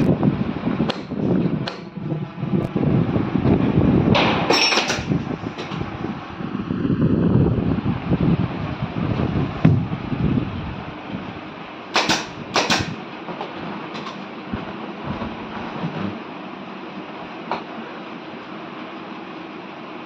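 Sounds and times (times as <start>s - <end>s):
chair knocks and bumps: 12.1s - 16.2s.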